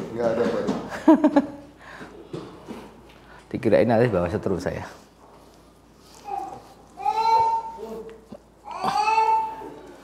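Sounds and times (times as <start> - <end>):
man laughing: 0.9 - 1.6.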